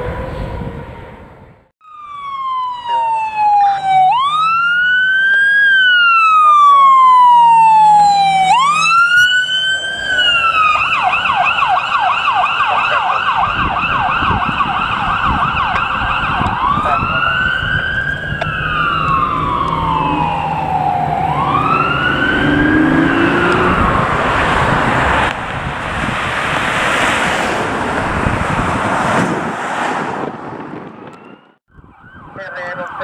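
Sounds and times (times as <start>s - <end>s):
electronic siren wailing and yelping: 1.8s - 24.6s, 31.0s - 33.0s.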